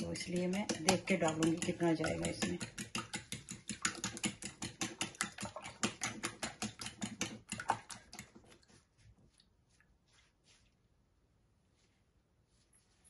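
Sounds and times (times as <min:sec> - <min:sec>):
utensil clicking against bowl: 0:00.0 - 0:08.3.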